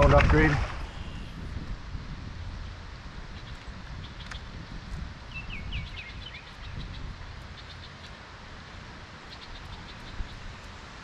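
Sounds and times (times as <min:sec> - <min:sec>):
wind rumbling on microphone: 0:00.0 - 0:11.0
bird chirps: 0:00.8 - 0:01.4, 0:05.3 - 0:08.2, 0:09.3 - 0:10.7.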